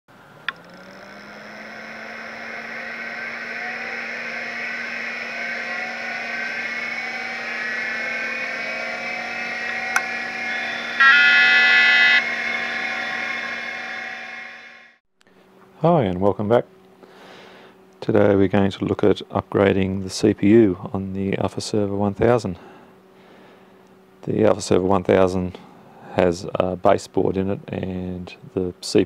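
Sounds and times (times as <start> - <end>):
fans whining: 0.1 - 15.0
steady hum: 0.1 - 15.6
loud beep: 2.6 - 14.9.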